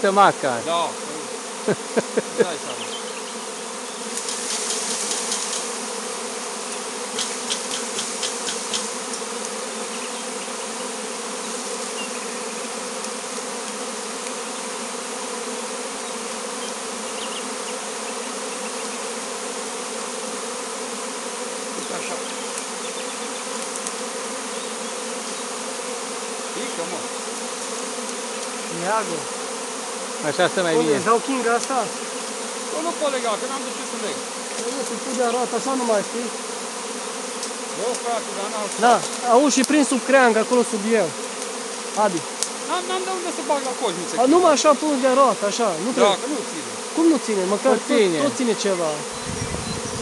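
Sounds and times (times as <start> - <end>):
bees buzzing: 0.0 - 50.0
branch rustling and crackling: 4.0 - 5.8, 31.1 - 31.8, 34.4 - 35.5, 37.4 - 42.6.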